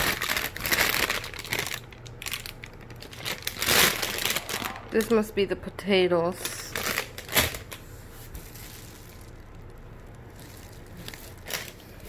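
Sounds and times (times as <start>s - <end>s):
packaging rustling: 0.0s - 5.2s, 6.7s - 12.0s.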